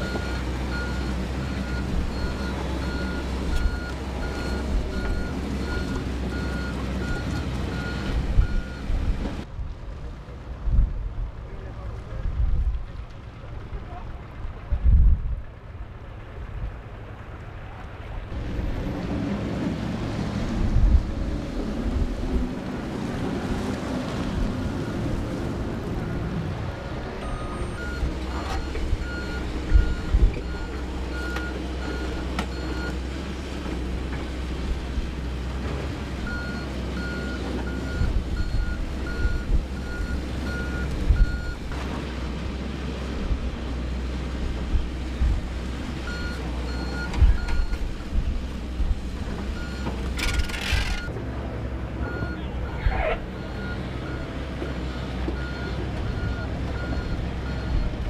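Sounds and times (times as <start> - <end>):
diesel engine drone: 0.0 - 58.0
reversing alarm beeping: 36.3 - 41.6, 49.6 - 51.1, 52.0 - 57.9.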